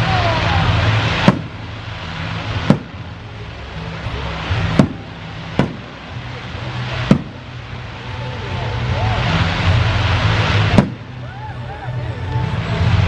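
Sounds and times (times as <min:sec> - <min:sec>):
fountain fireworks hissing: 0:00.0 - 0:13.0
firework shells bursting: 0:00.6 - 0:03.3, 0:03.9 - 0:08.3, 0:09.2 - 0:11.2
music with low bass notes: 0:00.7 - 0:13.0.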